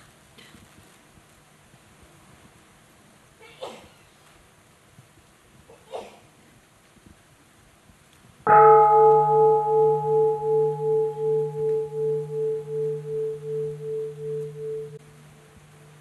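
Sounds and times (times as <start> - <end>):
meditation bell ringing: 8.5 - 16.0.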